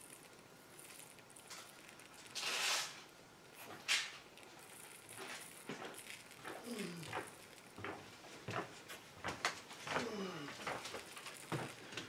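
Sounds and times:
glitter rattling in spoon: 0.0s - 7.8s, 11.0s - 11.9s.

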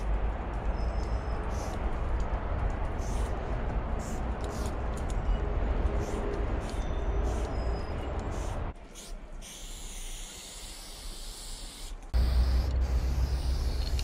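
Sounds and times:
spray paint can hissing: 4.0s - 4.8s, 8.3s - 14.0s.

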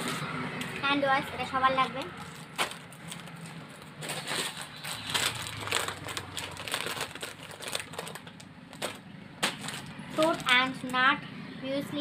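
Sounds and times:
plastic packaging crinkling: 2.2s - 11.0s.

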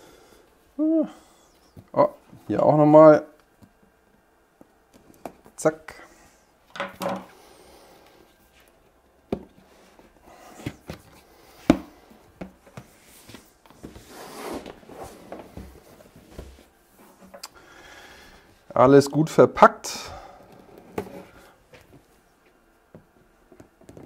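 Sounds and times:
cardboard rubbing and scraping: 13.0s - 17.2s.

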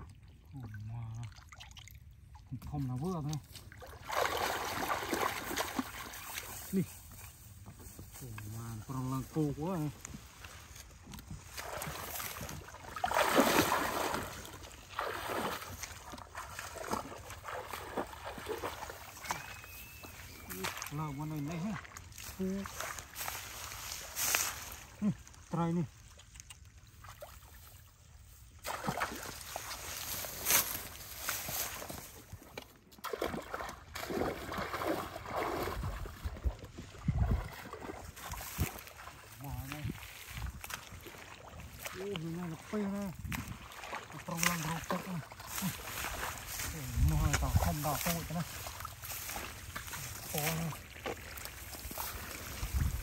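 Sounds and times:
muddy water sloshing and splashing: 0.0s - 53.0s.

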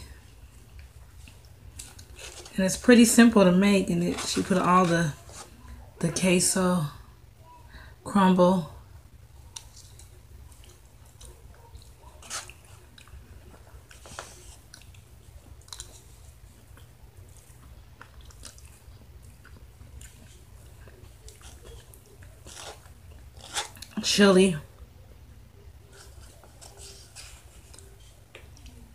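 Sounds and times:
low steady hum: 0.0s - 28.9s
person chewing: 0.6s - 2.5s, 9.5s - 24.0s.

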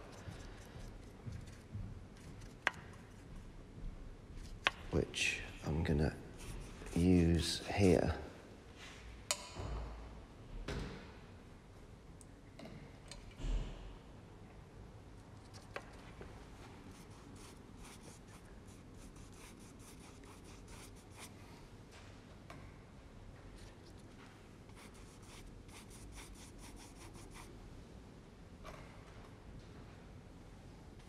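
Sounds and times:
paintbrush scrubbing on paper: 6.3s - 7.6s, 16.9s - 21.4s, 24.7s - 27.5s.

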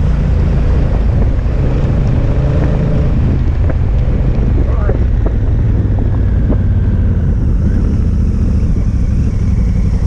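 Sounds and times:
motorcycle engine rumble: 0.0s - 10.0s
wind rumble on microphone: 0.0s - 10.0s.

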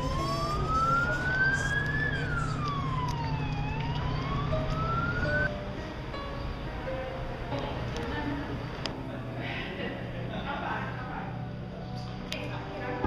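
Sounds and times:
emergency siren wailing: 0.0s - 5.5s.

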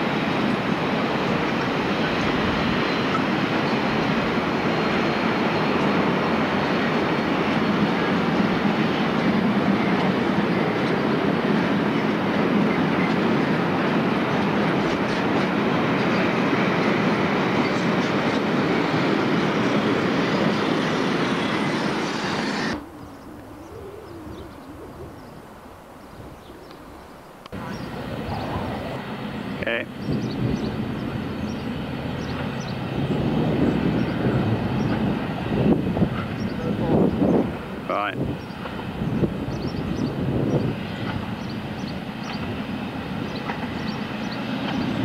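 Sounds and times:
freight train wheels on rails: 0.0s - 22.9s, 27.4s - 45.0s
quiet outdoor ambience: 21.3s - 32.8s.

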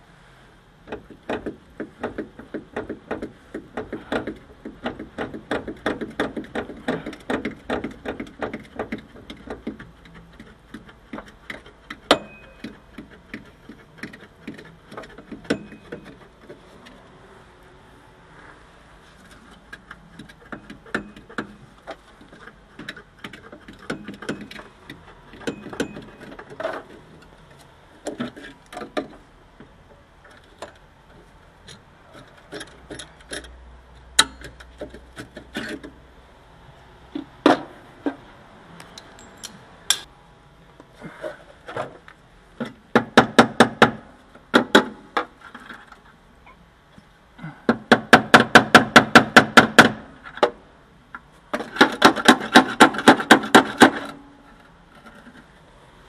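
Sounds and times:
metallic clicks and knocks of tools: 38.8s - 40.1s.

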